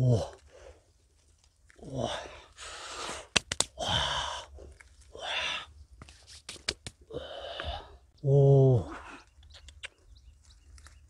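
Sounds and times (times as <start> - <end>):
branch snapping: 3.3 - 3.8, 5.9 - 7.0.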